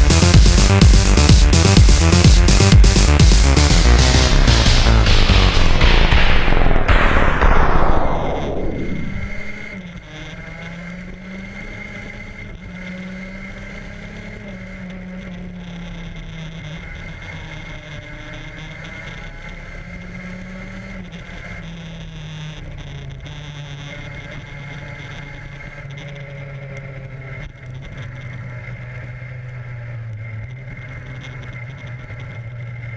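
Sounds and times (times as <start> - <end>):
background music: 0.0 - 9.6
racing car engine: 0.0 - 32.9
road and wind noise: 0.0 - 32.9.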